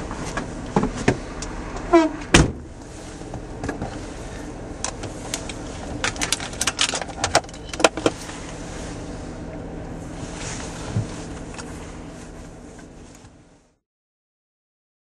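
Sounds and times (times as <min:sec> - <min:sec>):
steady low hum: 0:00.0 - 0:13.8
sharp clicks and rattles: 0:04.8 - 0:08.2.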